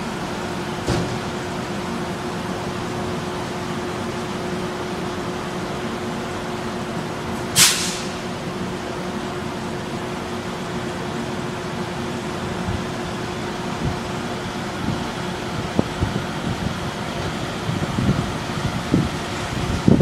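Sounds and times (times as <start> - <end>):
train wheels rumbling on track: 0.0 - 20.0
sharp hiss: 7.5 - 8.3.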